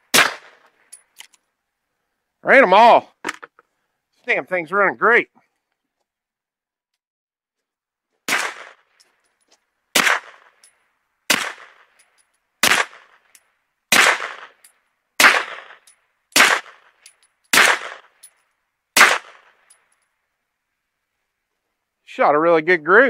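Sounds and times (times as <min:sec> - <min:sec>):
suppressed pistol shots: 0:00.1 - 0:00.6, 0:08.3 - 0:09.0, 0:09.9 - 0:10.6, 0:11.3 - 0:12.0, 0:12.6 - 0:13.2, 0:13.9 - 0:14.6, 0:15.2 - 0:18.2, 0:19.0 - 0:19.6.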